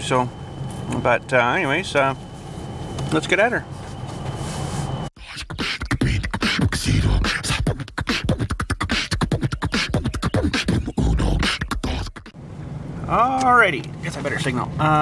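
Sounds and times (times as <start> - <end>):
beatboxing: 5.2 - 12.4.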